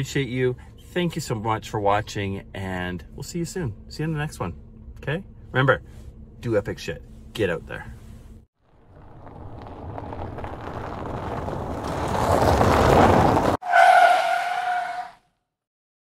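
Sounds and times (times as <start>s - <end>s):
car rushing past: 8.6s - 15.2s
tyre squeal: 9.6s - 15.2s.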